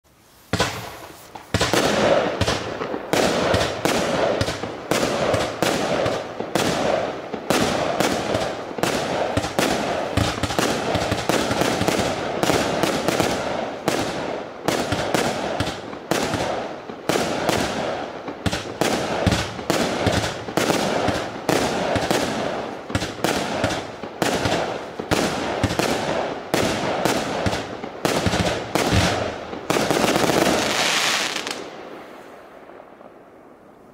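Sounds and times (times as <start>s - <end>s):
fireworks aerial bursts: 0.1s - 33.2s
fireworks crackle: 0.1s - 33.9s
fireworks launch thumps: 0.5s - 3.7s.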